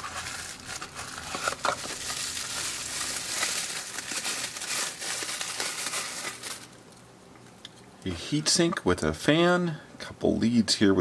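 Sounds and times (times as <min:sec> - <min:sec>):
bubble wrap crinkling: 0:00.0 - 0:07.0.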